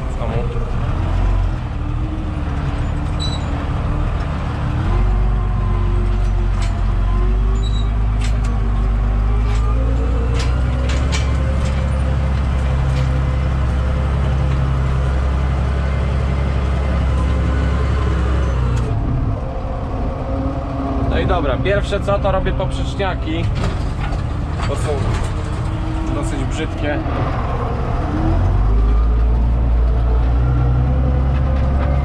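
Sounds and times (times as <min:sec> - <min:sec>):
tractor diesel engine running: 0:00.0 - 0:32.0
knocks and rattles: 0:06.0 - 0:14.7, 0:23.3 - 0:27.9.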